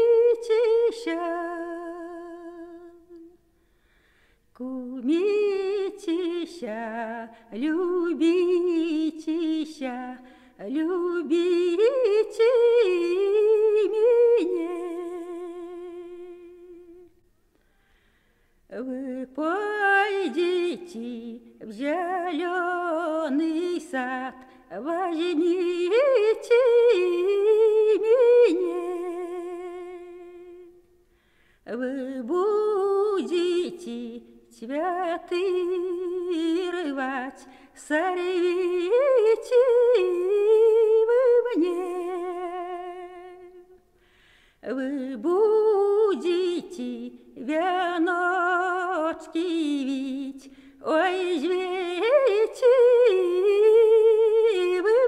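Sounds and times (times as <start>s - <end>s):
woman singing unaccompanied: 0.0s - 3.4s, 4.6s - 17.1s, 18.7s - 30.9s, 31.7s - 43.8s, 44.6s - 55.0s.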